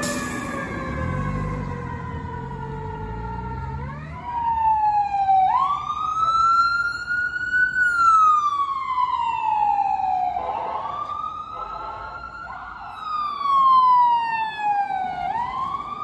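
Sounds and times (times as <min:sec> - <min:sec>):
truck engine rumbling: 0:00.0 - 0:05.0
ambulance siren wailing: 0:00.0 - 0:16.0
fire engine siren winding down: 0:00.0 - 0:16.0.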